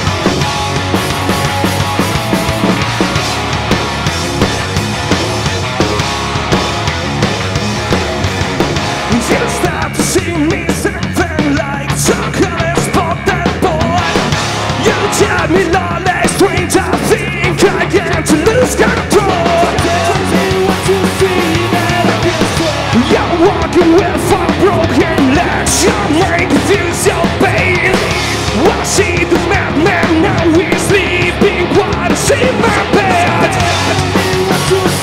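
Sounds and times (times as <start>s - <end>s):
live rock band playing: 0.0s - 35.0s
man singing: 9.0s - 35.0s.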